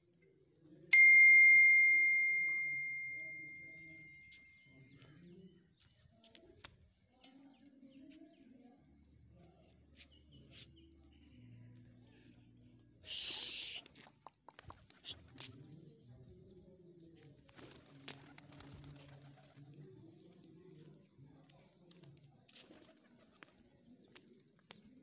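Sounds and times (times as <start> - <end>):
notification bell ding: 0.9 - 4.5.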